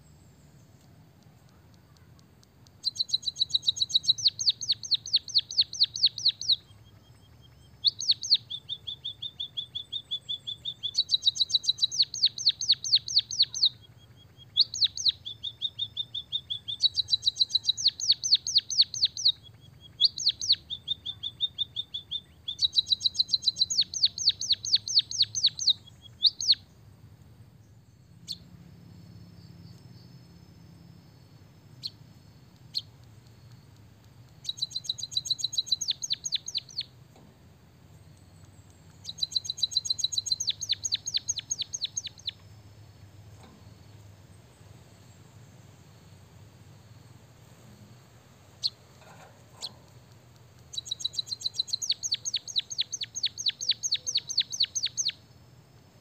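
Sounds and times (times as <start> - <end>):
bird singing trills and whistles: 2.8 - 26.7, 32.6 - 37.0, 38.0 - 42.5, 48.6 - 48.9, 50.6 - 55.2.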